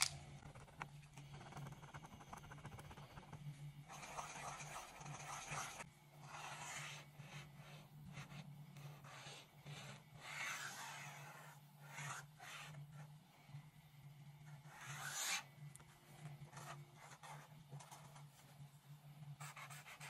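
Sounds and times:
faint low hum: 0.0s - 20.0s
marker rubbing on paper: 3.9s - 13.1s, 14.6s - 15.4s.

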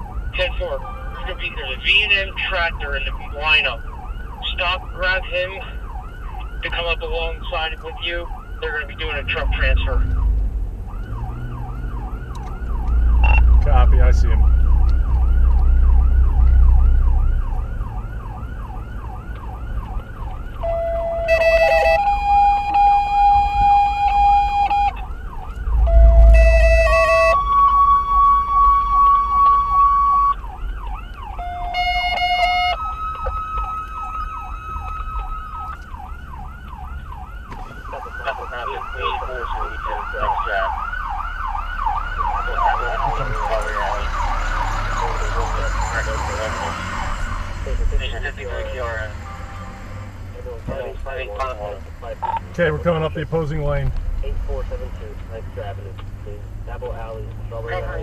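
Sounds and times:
emergency siren yelp: 0.0s - 52.5s
low vehicle rumble: 0.0s - 58.0s
steady horn-like tones: 25.6s - 29.7s, 45.0s - 51.6s.

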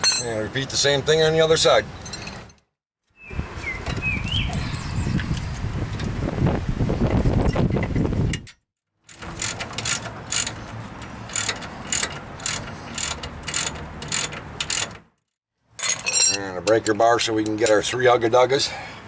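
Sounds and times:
ratchet wrench clicking: 9.1s - 15.0s.

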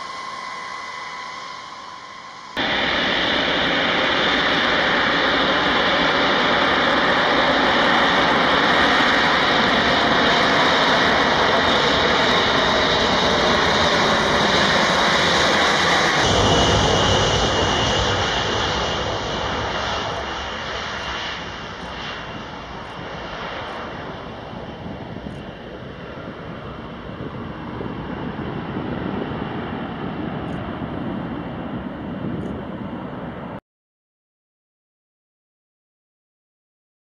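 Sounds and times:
jet engines at takeoff: 0.0s - 33.6s
deep rumble: 15.4s - 33.6s.

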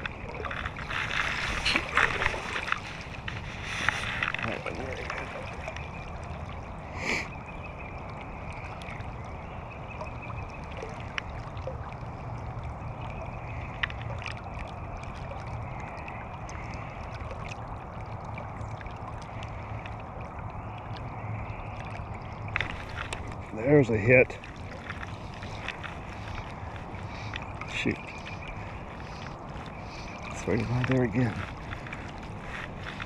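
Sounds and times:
river water rushing and lapping: 0.0s - 33.0s
water swish: 0.0s - 33.0s
faint ticks: 13.5s - 14.7s.

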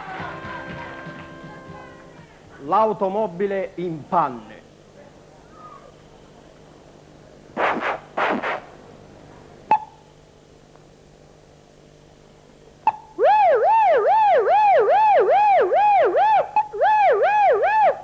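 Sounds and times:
man imitating warbling siren: 13.2s - 18.0s.

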